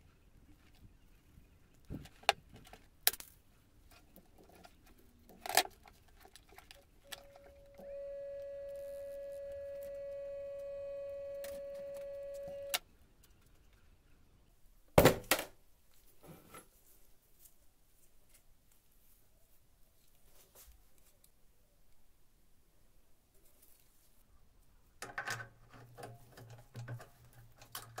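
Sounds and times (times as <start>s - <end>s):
electric motor whine: 7.1s - 12.8s.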